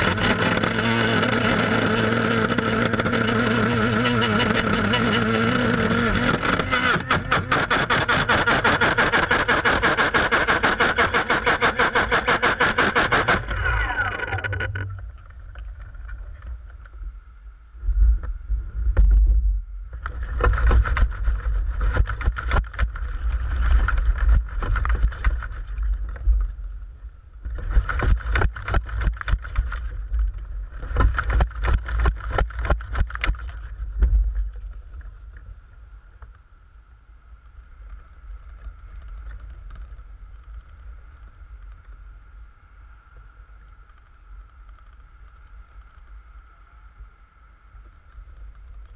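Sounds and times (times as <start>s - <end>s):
drone propellers chopping: 0.0s - 15.3s
leaves and twigs rustling: 19.9s - 36.5s, 37.2s - 48.9s.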